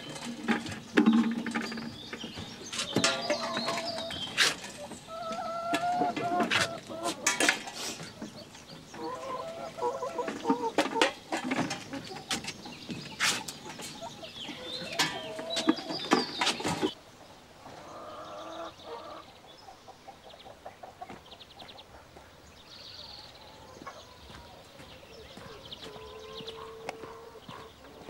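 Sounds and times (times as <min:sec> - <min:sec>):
knocks and clatters: 0:00.0 - 0:05.0, 0:10.4 - 0:13.9
hens clucking: 0:00.0 - 0:17.0, 0:17.6 - 0:22.2, 0:23.2 - 0:28.0.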